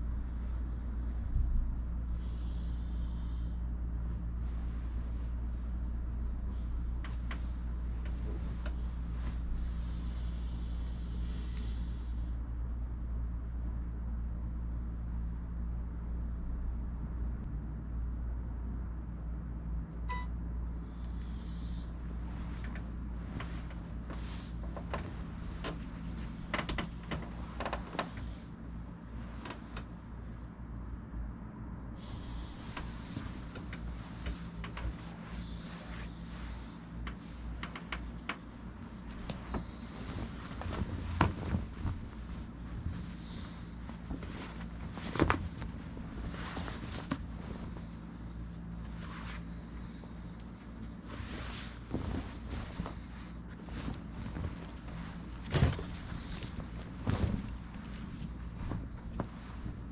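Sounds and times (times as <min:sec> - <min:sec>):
low electrical hum: 0:00.0 - 0:59.9
bedding rustling: 0:04.3 - 0:11.6, 0:21.5 - 0:30.9, 0:32.0 - 0:59.9
blanket flapping: 0:38.9 - 0:48.2, 0:51.0 - 0:59.9.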